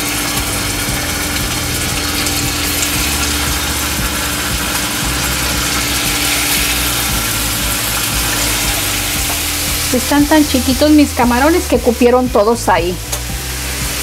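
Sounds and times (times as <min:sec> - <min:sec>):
hot oil sizzling in a skillet: 0:00.0 - 0:14.0.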